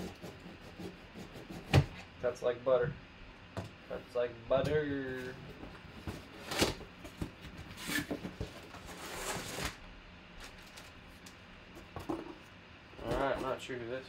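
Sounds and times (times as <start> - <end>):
plastic bag rustling: 10.4 - 11.2.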